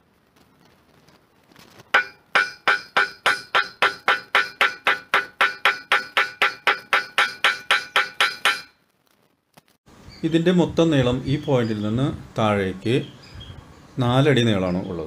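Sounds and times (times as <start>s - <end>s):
hammer tapping on metal: 2.0s - 8.7s.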